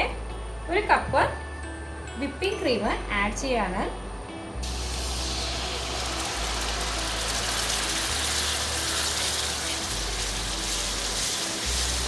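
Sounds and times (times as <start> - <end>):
caramel sizzling: 4.6 - 12.0
cream being poured: 4.6 - 12.0.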